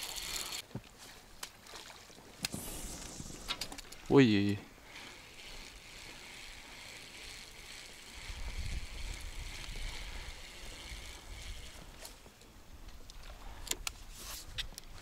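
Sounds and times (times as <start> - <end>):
river water lapping around boat: 0.8 - 2.4
low rumble: 2.5 - 3.8.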